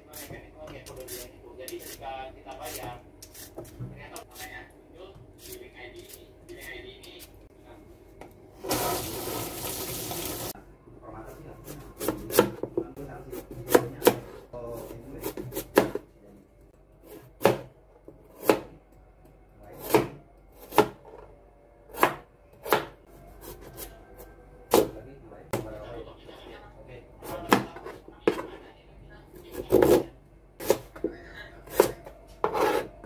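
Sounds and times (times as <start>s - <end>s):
tap water running: 8.6s - 10.6s
knife chopping on cutting board: 11.7s - 14.4s, 15.2s - 16.1s, 17.0s - 18.7s, 19.8s - 21.0s, 21.9s - 23.9s.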